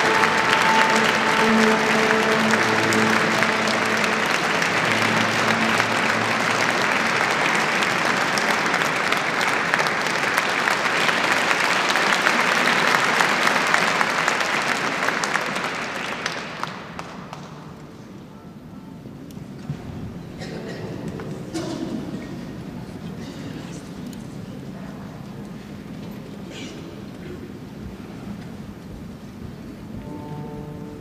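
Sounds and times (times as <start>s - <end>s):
steady low tones: 0.0s - 8.7s
audience applauding: 0.0s - 18.1s.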